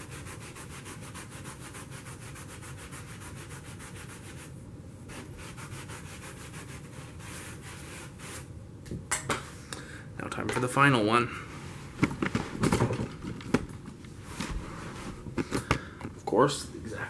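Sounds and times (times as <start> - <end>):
brush scrubbing carpet: 0.0 - 4.5, 5.1 - 8.5.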